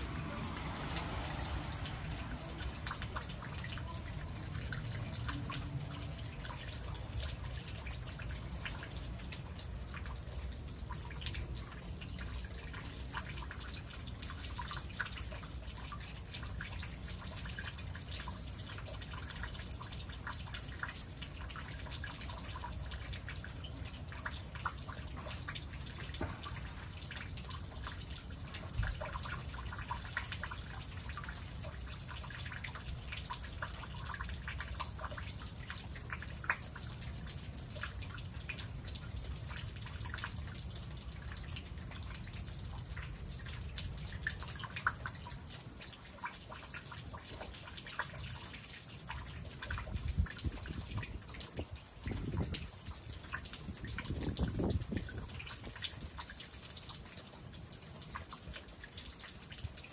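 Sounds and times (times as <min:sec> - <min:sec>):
low steady rumble: 0:00.0 - 0:11.0
water dripping: 0:00.0 - 0:59.9.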